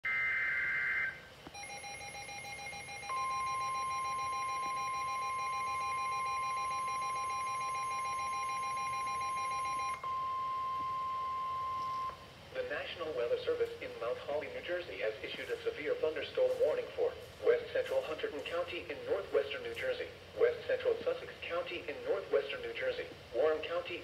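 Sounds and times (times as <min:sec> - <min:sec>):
rapidly pulsing alarm beep: 0:00.0 - 0:12.2
steady warning alarm tone: 0:00.0 - 0:12.3.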